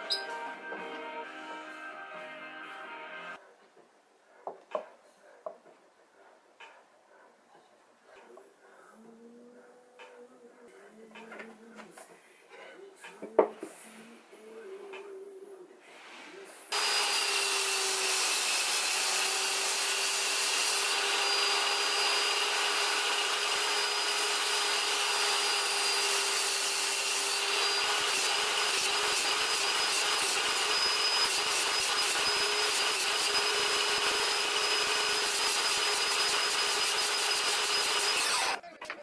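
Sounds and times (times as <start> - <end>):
saw cutting wood rumble: 16.7 - 38.6
table saw motor whine: 16.7 - 38.6.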